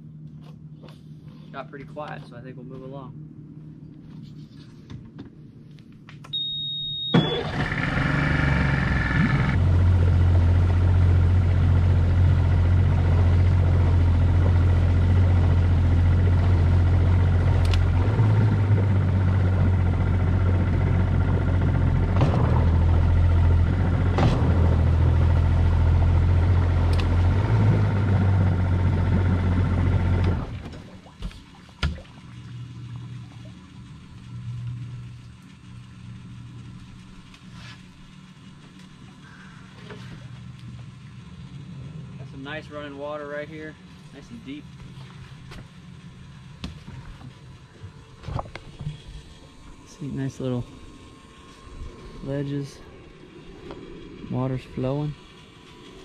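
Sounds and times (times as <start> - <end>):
short high beep: 6.3 - 7.5
outboard motor running: 6.3 - 56.0.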